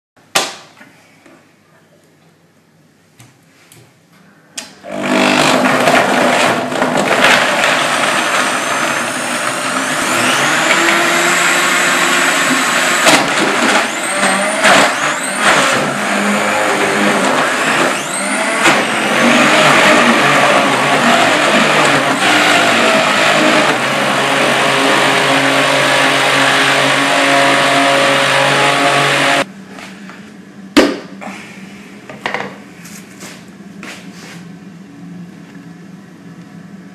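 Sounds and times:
blender motor whining: 0:04.8 - 0:29.5.

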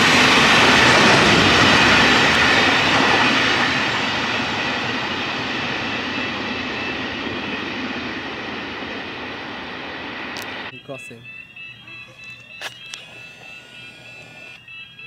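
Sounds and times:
freight train wheels rumbling on rails: 0:00.0 - 0:10.5.

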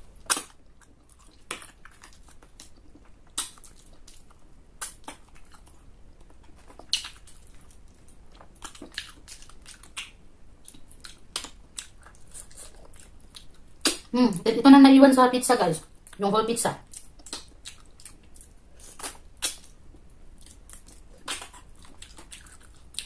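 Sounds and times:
person chewing: 0:00.0 - 0:14.1, 0:16.8 - 0:23.0
wet mouth smacks and clicks: 0:03.3 - 0:04.2, 0:06.8 - 0:07.4, 0:08.7 - 0:12.0, 0:13.8 - 0:14.1, 0:16.9 - 0:18.2, 0:19.0 - 0:19.7, 0:20.4 - 0:22.5.

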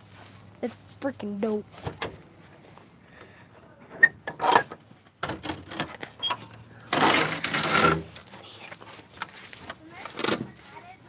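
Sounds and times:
loud rustle: 0:06.9 - 0:11.0.

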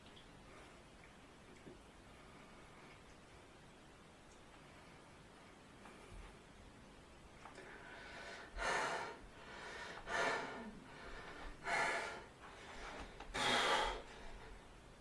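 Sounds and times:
man breathing hard: 0:07.6 - 0:14.7.

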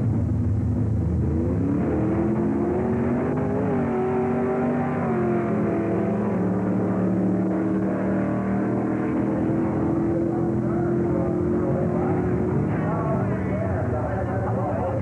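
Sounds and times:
drag car engine at full throttle: 0:00.0 - 0:15.0.

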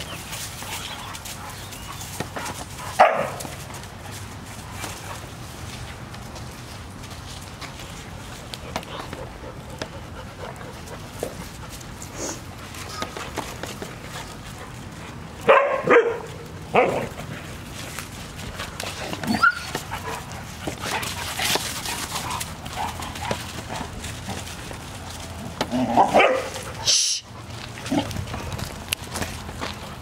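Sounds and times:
dogs barking: 0:00.6 - 0:03.7, 0:15.4 - 0:17.2, 0:25.8 - 0:27.0
dog yelping: 0:19.2 - 0:19.8.

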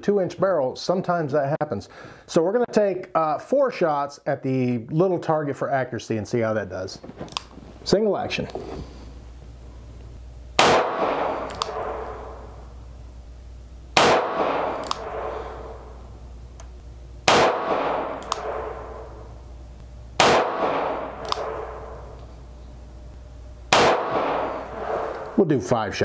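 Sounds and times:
revolver shots with reverberation: 0:10.6 - 0:12.7, 0:14.0 - 0:16.1, 0:17.2 - 0:19.4, 0:20.2 - 0:22.2, 0:23.7 - 0:25.4
revolver hammer cocking click: 0:11.4 - 0:12.0, 0:14.0 - 0:15.3, 0:17.4 - 0:18.6, 0:20.2 - 0:22.3.

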